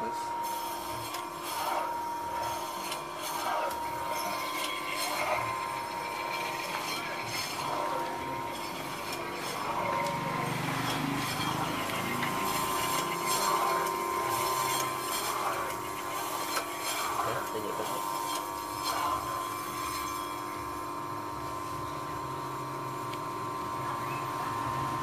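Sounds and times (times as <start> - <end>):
meat slicer motor hum: 0.0 - 25.0
slicer blade rasping through food: 2.5 - 20.2.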